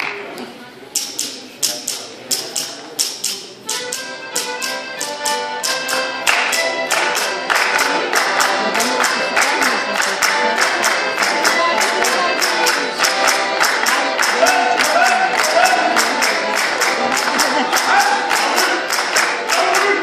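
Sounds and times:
folk dance tune: 0.9s - 20.0s
group clapping hands: 4.4s - 20.0s.

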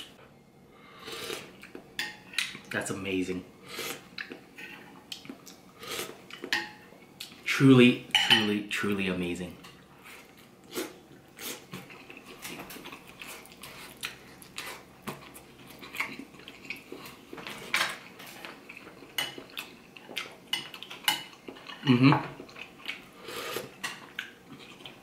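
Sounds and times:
chewing and wet mouth noises: 3.9s - 4.5s, 10.2s - 25.0s.

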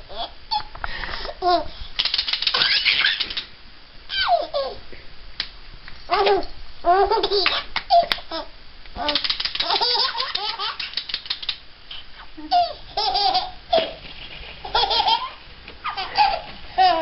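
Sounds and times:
infant laughing: 12.4s - 14.0s, 14.6s - 17.0s.

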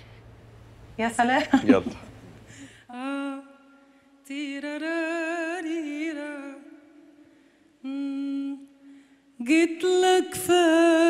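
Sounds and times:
woman singing unaccompanied: 2.9s - 7.2s, 7.8s - 8.8s, 9.4s - 11.0s.

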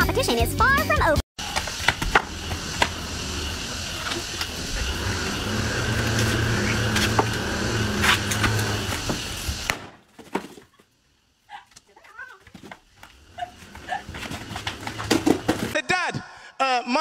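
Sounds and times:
engine humming: 1.4s - 9.8s, 10.9s - 15.8s.

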